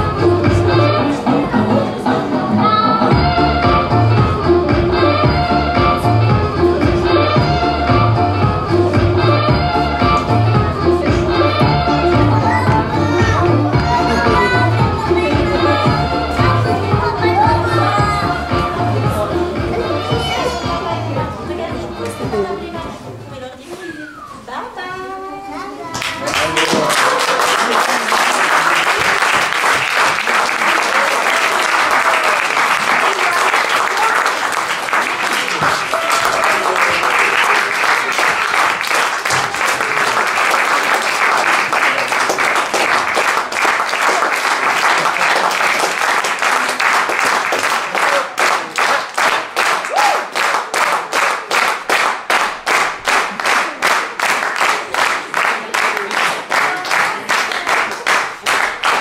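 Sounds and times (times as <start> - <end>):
audience applauding: 26.0 - 59.0
rhythmic clapping in unison: 26.0 - 59.0.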